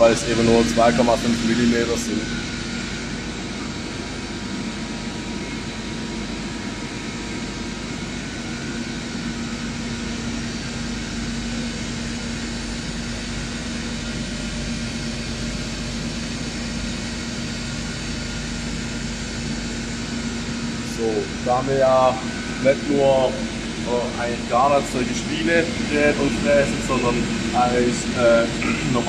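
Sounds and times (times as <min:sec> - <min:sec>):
lathe machine hum and whir: 0:00.0 - 0:29.0.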